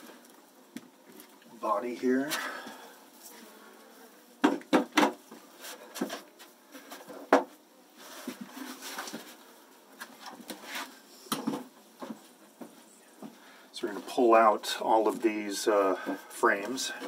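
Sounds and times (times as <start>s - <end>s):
wooden hive lid knocking: 4.4s - 5.2s.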